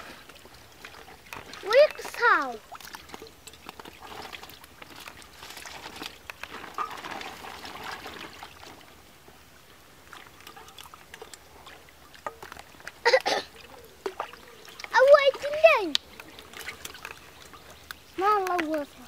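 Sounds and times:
small splashes and drips: 0.0s - 19.0s
water splashing and trickling: 0.0s - 19.0s.

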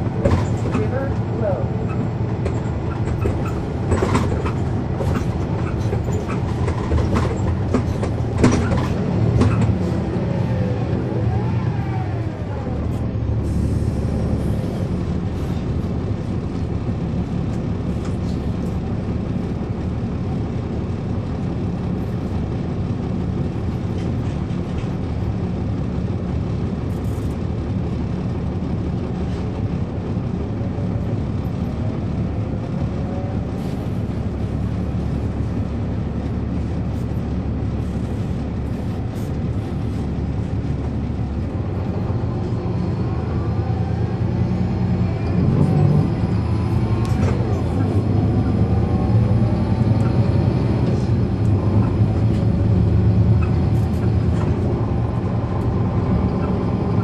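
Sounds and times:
bus diesel engine from inside: 0.0s - 57.0s.

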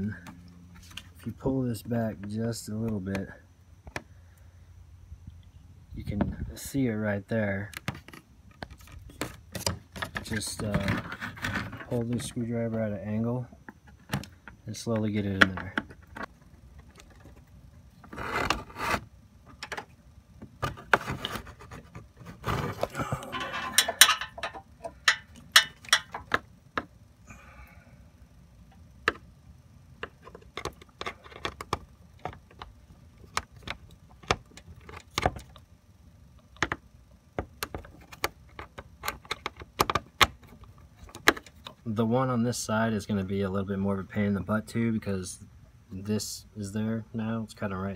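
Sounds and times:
screwdriver scraping and rattling: 7.8s - 12.4s, 20.6s - 26.4s.

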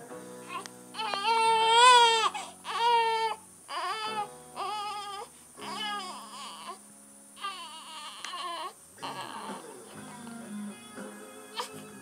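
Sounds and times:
baby crying: 0.4s - 6.8s, 7.4s - 9.6s.

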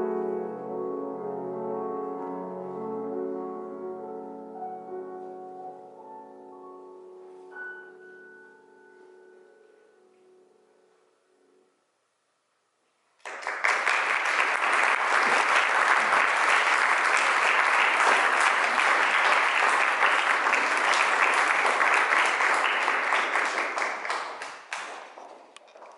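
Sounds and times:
audience applauding: 13.2s - 25.6s.

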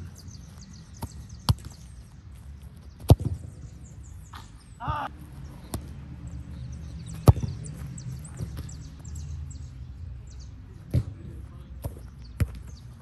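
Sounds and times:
low outdoor background noise: 0.0s - 13.0s
football kicks: 0.5s - 1.9s, 2.8s - 3.6s, 4.3s - 5.1s, 7.2s - 8.8s, 10.9s - 13.0s.

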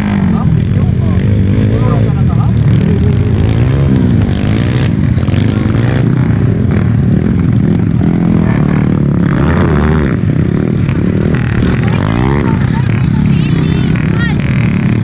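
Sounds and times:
motorcycle engines revving: 0.0s - 15.0s.

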